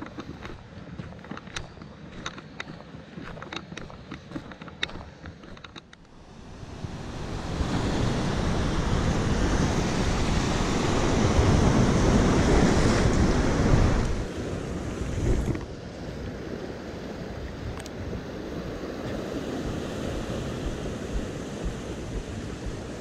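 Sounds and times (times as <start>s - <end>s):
sharp clicks: 0.0s - 6.1s
surf on rocky shore: 0.0s - 23.0s
wind buffeting microphone: 6.3s - 23.0s.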